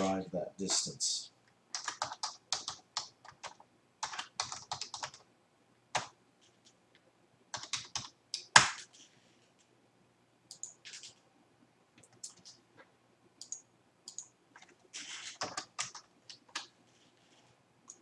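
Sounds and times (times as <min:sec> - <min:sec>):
typing on computer keyboard: 0:01.7 - 0:05.3, 0:07.5 - 0:08.9, 0:10.5 - 0:11.2, 0:12.0 - 0:12.6, 0:13.4 - 0:16.7.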